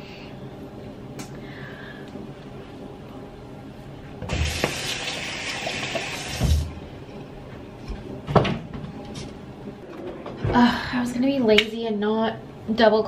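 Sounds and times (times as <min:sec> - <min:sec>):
sink tap running: 0:04.2 - 0:06.7.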